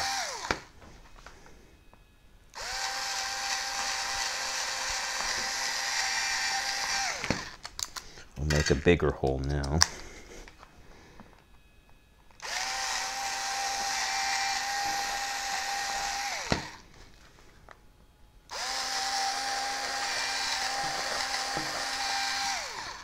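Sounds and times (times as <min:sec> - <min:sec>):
cordless drill whining: 0:00.0 - 0:01.6, 0:02.5 - 0:08.0, 0:12.3 - 0:17.5, 0:18.5 - 0:23.0.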